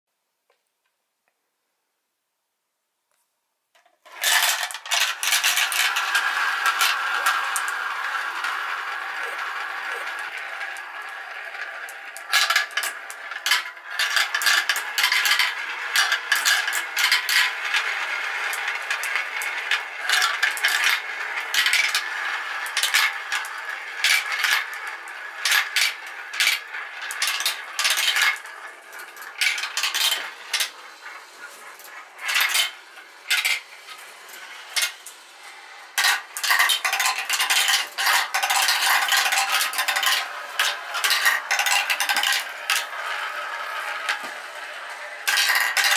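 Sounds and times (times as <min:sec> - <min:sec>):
marbles rolling in plastic run: 0:03.8 - 0:45.9
marbles clicking and clacking: 0:04.0 - 0:45.9.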